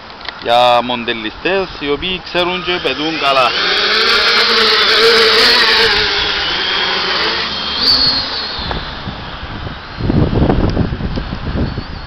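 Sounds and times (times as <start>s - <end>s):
drone propellers whining: 2.4s - 11.4s
wind buffeting microphone: 3.5s - 12.0s.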